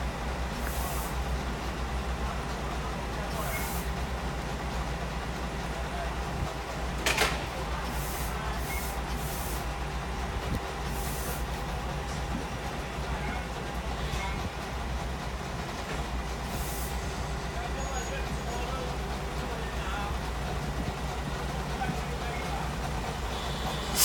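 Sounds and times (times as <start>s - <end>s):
diesel engine idling: 0.0s - 24.0s
short sharp air hiss: 0.6s - 1.2s, 3.4s - 3.9s, 7.9s - 9.7s, 10.9s - 11.5s, 16.5s - 17.0s, 23.7s - 24.0s.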